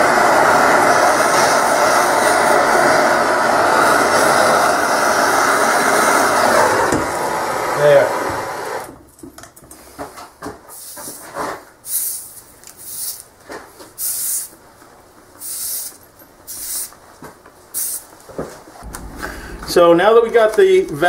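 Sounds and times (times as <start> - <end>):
torch hissing: 0.0 - 8.9.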